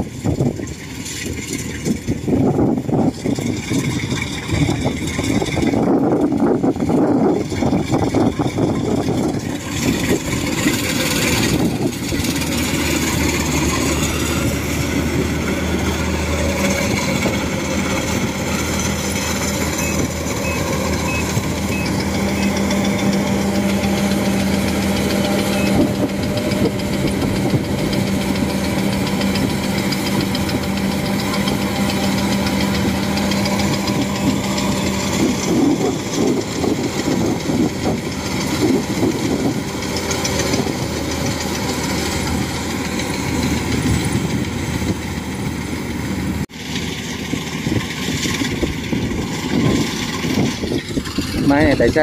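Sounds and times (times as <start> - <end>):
combine harvester running: 0.0 - 52.0.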